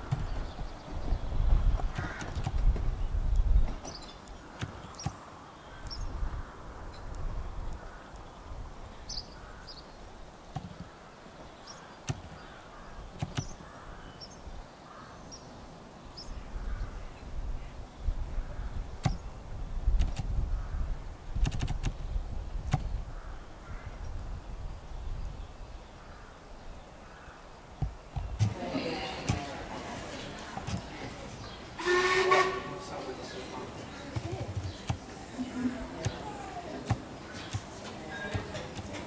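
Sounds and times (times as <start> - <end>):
small birds chirping: 0.0 - 31.8, 33.0 - 39.0
wheels clanking over rail joints: 28.2 - 39.0
train rumbling: 28.3 - 39.0.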